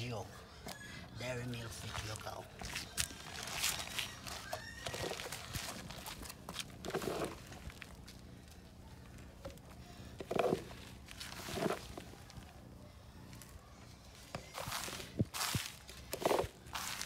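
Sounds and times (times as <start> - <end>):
dry meal rustling and scraping: 1.7 - 7.9, 10.3 - 12.1, 14.6 - 17.0.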